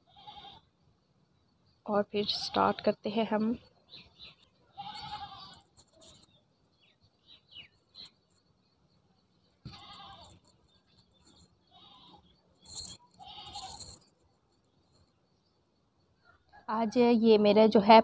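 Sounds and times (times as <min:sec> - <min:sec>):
faint animal bleating: 0:00.0 - 0:00.7, 0:04.6 - 0:05.7, 0:09.7 - 0:10.5, 0:11.6 - 0:12.3, 0:13.2 - 0:13.8.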